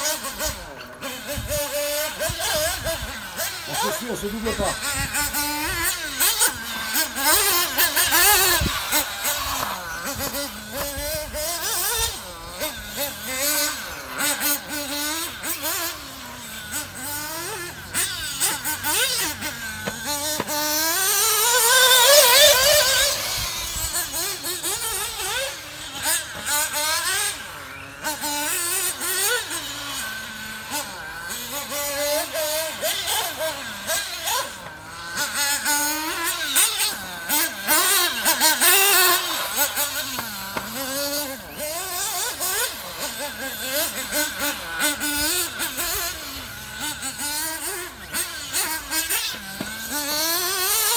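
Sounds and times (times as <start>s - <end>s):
car accelerating with rising whine: 0.0s - 50.9s
small engines revving: 0.0s - 50.9s.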